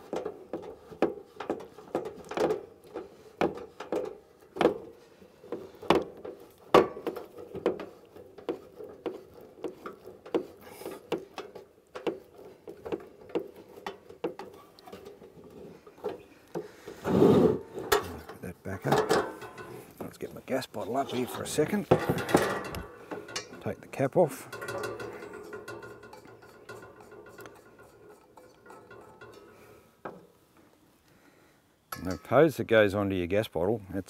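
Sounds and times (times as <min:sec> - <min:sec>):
metal rubbing: 0:00.0 - 0:30.4
light metal clicks and taps: 0:17.9 - 0:20.1, 0:21.9 - 0:23.7, 0:24.4 - 0:30.3.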